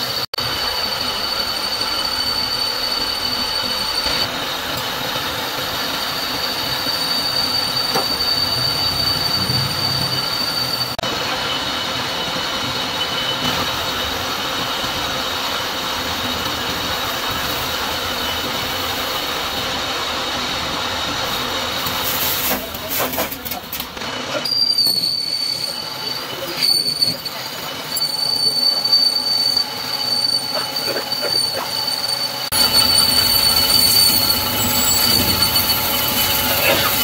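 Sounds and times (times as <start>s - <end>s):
sharp high whine: 0.0s - 14.4s, 24.6s - 37.0s
metal lathe cutting hiss: 0.0s - 23.3s, 24.0s - 37.0s.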